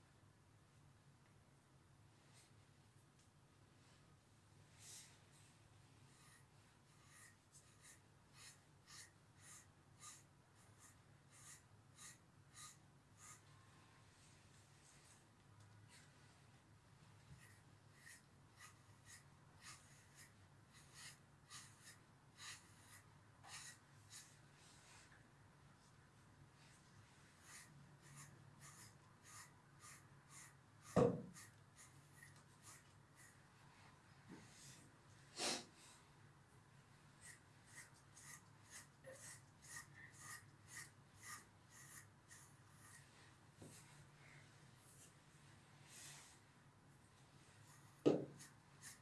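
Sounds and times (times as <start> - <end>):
grooming brush strokes through fur: 4.8 - 13.6, 17.1 - 25.2, 26.6 - 33.4, 37.1 - 44.1, 47.2 - 49.0.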